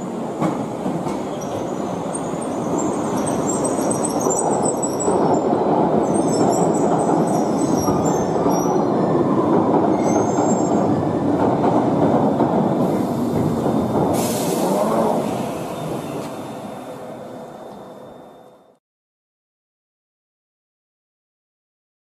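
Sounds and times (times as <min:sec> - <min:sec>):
train rumble: 0:00.0 - 0:18.7
short hiss: 0:14.1 - 0:15.5.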